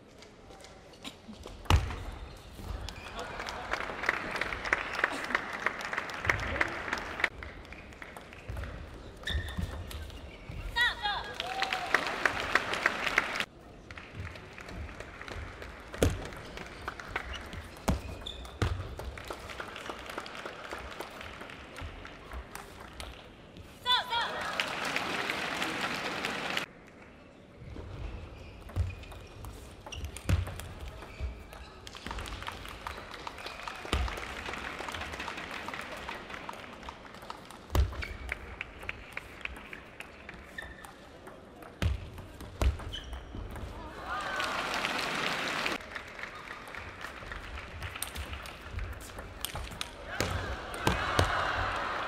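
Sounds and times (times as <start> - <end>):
crowd clapping: 2.8 - 8.7, 11.1 - 17.8, 18.9 - 23.2, 23.9 - 27.2, 31.9 - 40.6, 43.9 - 52.0.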